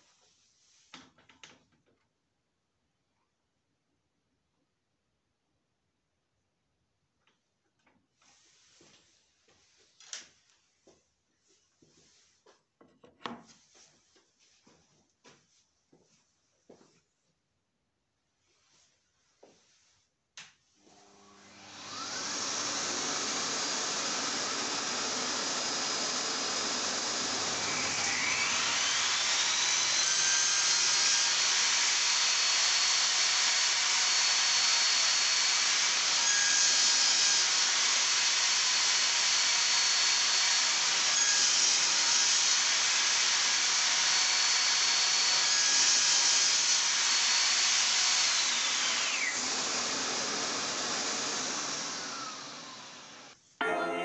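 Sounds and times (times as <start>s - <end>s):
power tool whining: 20.9s - 53.4s.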